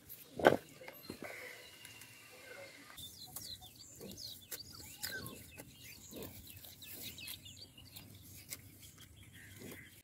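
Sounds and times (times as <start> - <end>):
high bird chirps: 3.0 - 10.0.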